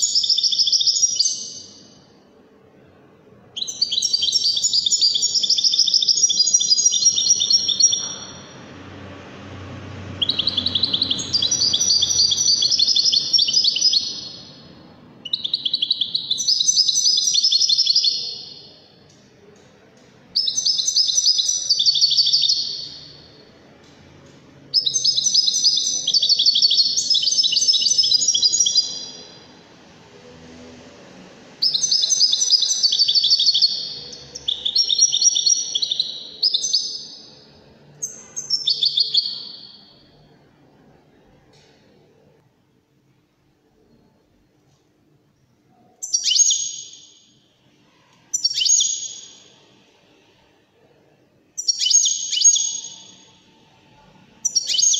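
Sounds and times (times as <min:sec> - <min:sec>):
goldfinch twittering and trilling: 0:54.4 - 0:54.9.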